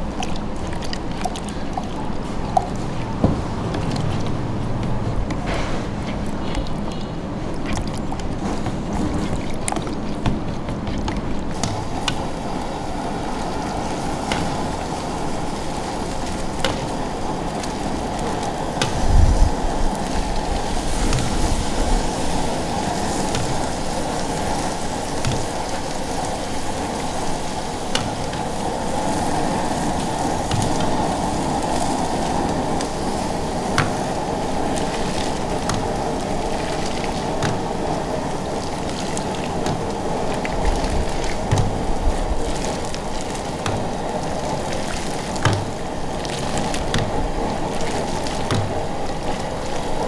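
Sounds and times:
steady rushing noise: 10.4s - 50.0s.

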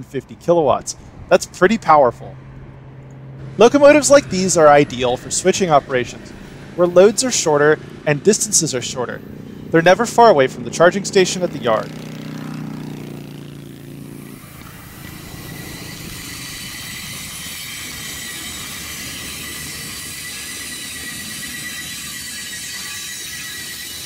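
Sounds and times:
wheels on rails: 0.0s - 24.0s
high-pitched whine: 3.4s - 10.8s, 12.8s - 24.0s.

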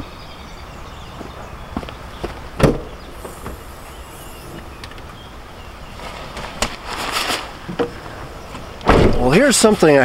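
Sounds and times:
tent bag rustling and scraping: 5.6s - 7.7s.

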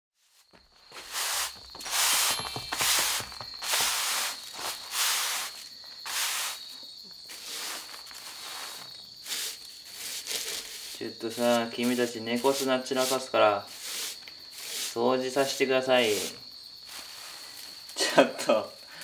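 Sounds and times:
broom sweeping over mats: 0.2s - 18.0s.

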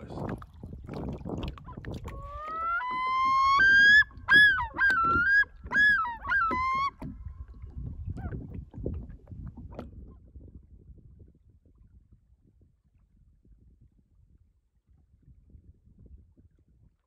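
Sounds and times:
loons calling: 2.2s - 7.0s.

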